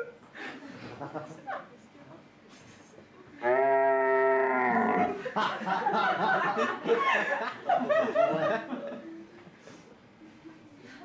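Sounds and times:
audience laughing: 0:05.0 - 0:10.5.

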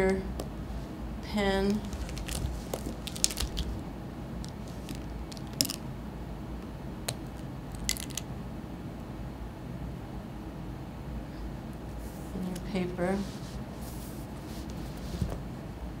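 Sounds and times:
low room hum: 0:00.0 - 0:16.0
paper rustling: 0:01.7 - 0:03.8.

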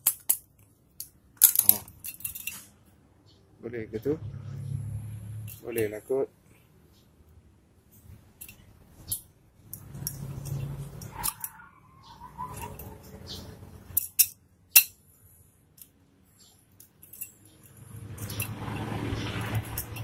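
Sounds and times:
sharp metallic clicks: 0:15.7 - 0:20.0.

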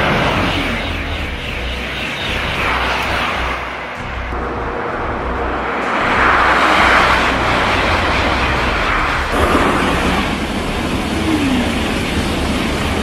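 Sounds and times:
high-speed train rushing past: 0:00.0 - 0:13.0.

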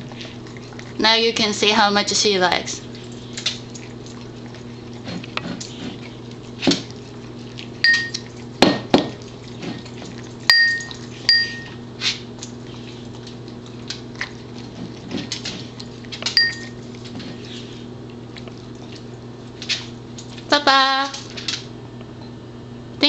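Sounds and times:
dog licking bowl: 0:00.0 - 0:20.5
ceramic bowl clinking: 0:07.8 - 0:08.2, 0:10.5 - 0:11.8, 0:16.4 - 0:16.8.

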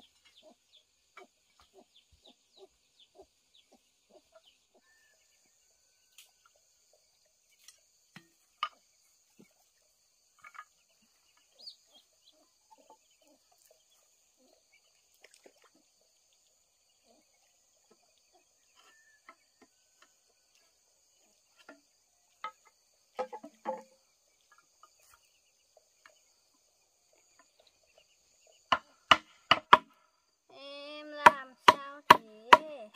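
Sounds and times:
high insect chorus: 0:00.0 - 0:32.9.

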